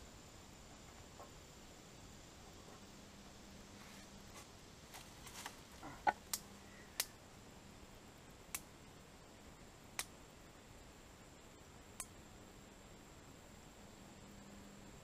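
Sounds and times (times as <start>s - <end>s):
twig fire crackling: 4.3s - 7.2s.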